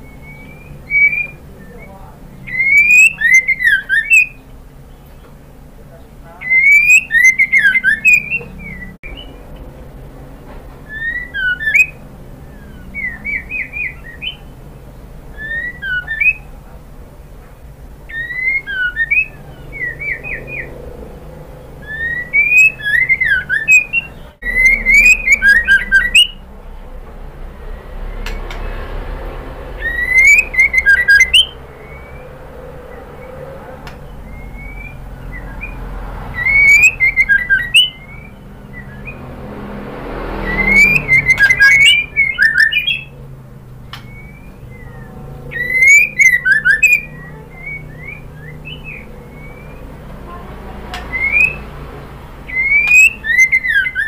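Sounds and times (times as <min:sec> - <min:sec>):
bird singing whistled phrases: 0:00.0 - 0:05.2, 0:06.4 - 0:09.4, 0:10.9 - 0:14.6, 0:15.3 - 0:16.5, 0:18.1 - 0:20.8, 0:21.7 - 0:26.4, 0:29.8 - 0:39.3, 0:40.3 - 0:43.2, 0:43.9 - 0:49.9, 0:50.9 - 0:51.7, 0:52.5 - 0:54.0.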